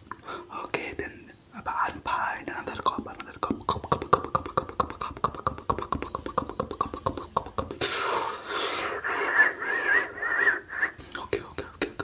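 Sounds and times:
breathy hiss: 0.1 - 2.9, 7.8 - 11.7
sharp mouth clicks: 2.6 - 9.0.

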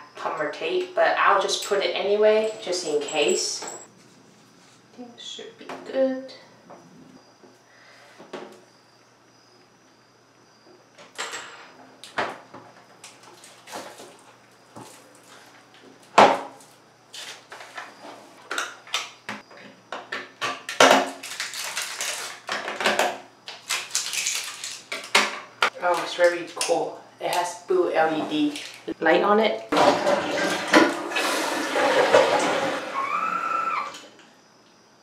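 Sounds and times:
plastic film crinkling: 21.1 - 22.5, 23.5 - 25.2.

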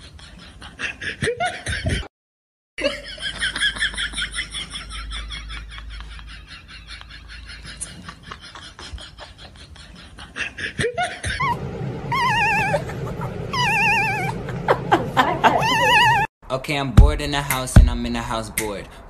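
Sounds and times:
low steady hum: 11.3 - 16.3
high warbling wail: 11.4 - 16.3.

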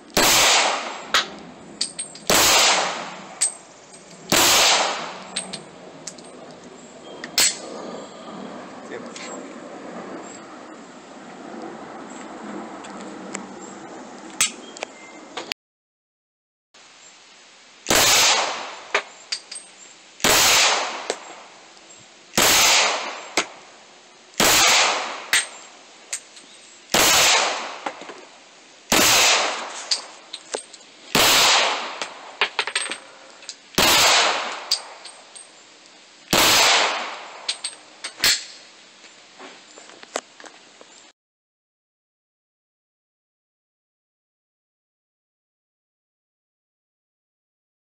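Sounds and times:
pistol shots echoing: 0.2 - 1.3, 2.3 - 3.4, 4.3 - 5.5, 17.9 - 18.8, 20.2 - 21.2, 22.4 - 23.4, 24.4 - 25.6, 26.9 - 27.8, 28.9 - 29.7, 31.2 - 32.2, 33.8 - 34.9, 36.3 - 37.5
light metallic clicks and clinks: 1.8 - 2.3, 5.3 - 6.7, 19.3 - 19.8.

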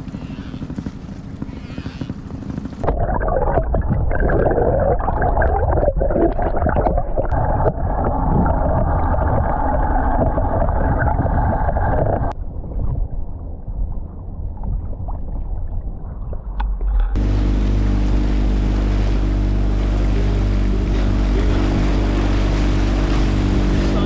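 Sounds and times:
outboard motor rumbling: 0.0 - 24.0
wind noise: 2.8 - 17.2, 18.6 - 24.0
rushing water: 17.2 - 24.0.

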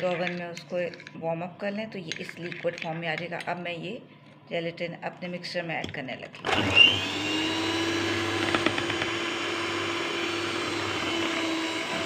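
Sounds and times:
electric hand mixer running: 6.4 - 12.0.

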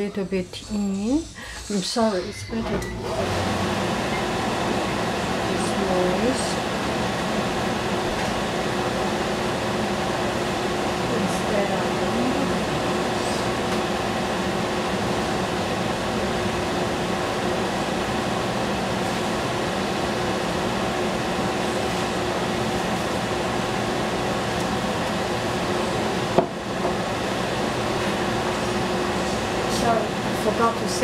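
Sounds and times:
range hood fan humming: 0.0 - 31.0.

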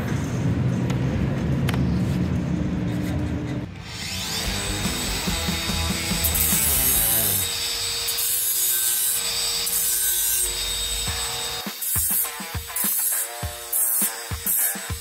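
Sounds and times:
grinder disc grinding metal: 3.7 - 15.0
grinder motor whine: 3.8 - 11.6.

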